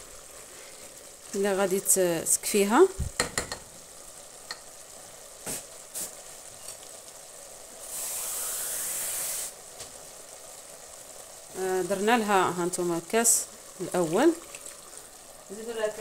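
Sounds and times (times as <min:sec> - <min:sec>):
stew sizzling in a pot: 0:00.0 - 0:16.0
wooden spoon knocking on pot: 0:03.1 - 0:03.7.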